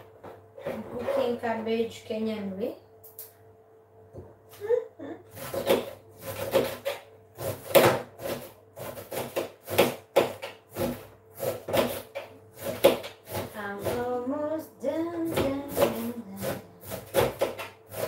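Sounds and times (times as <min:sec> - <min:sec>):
knife chopping cabbage: 0:05.3 - 0:14.1, 0:15.2 - 0:18.0.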